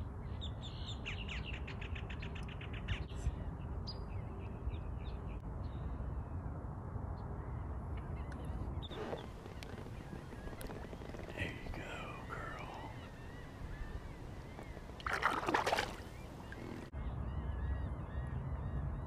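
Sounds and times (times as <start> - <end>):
birds calling: 8.0 - 18.8.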